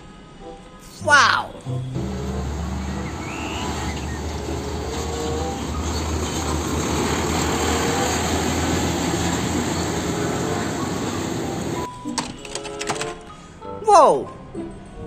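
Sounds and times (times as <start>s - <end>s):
diesel truck engine: 1.6s - 11.9s
tyre noise on road: 1.8s - 11.9s.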